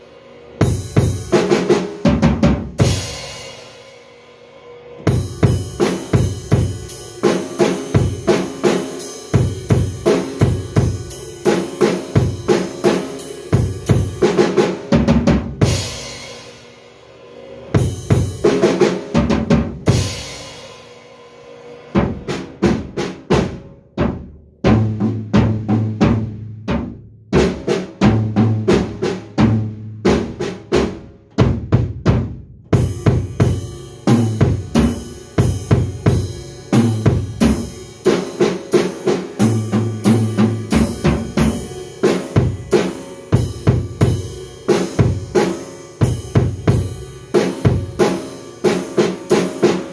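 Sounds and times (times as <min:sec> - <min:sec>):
rock drum groove: 0:00.0 - 0:04.1, 0:05.0 - 0:16.9, 0:17.6 - 0:49.9
cymbal crashes: 0:02.8 - 0:14.5, 0:15.6 - 0:19.0, 0:19.9 - 0:22.5, 0:32.8 - 0:49.9.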